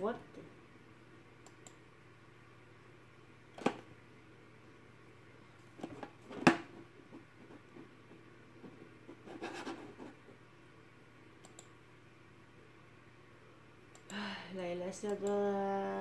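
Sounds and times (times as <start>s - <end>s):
low room hum: 0.0s - 16.0s
hand rubbing and scraping: 6.7s - 10.4s
mouse clicks: 11.4s - 11.7s.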